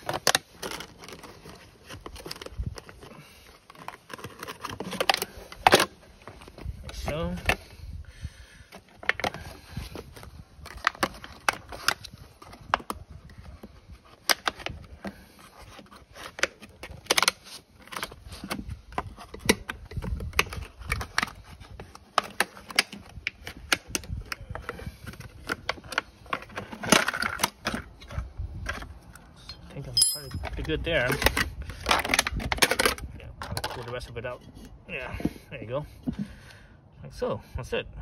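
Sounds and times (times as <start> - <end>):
plastic crinkling: 0.0 - 6.8.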